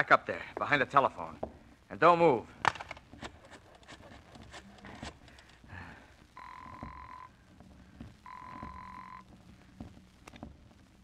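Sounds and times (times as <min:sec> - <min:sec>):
buzzing telephone ring tone: 0:06.4 - 0:07.4, 0:08.2 - 0:09.3.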